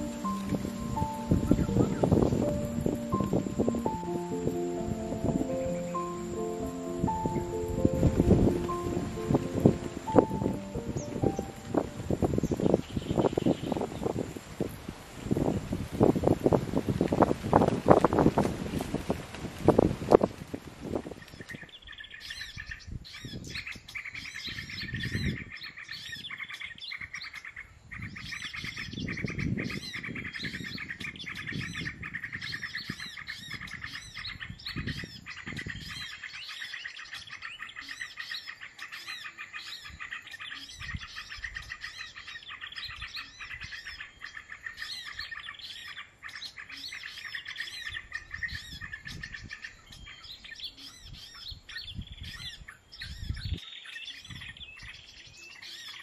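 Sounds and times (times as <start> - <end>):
songbirds chirping: 0.0 - 56.0.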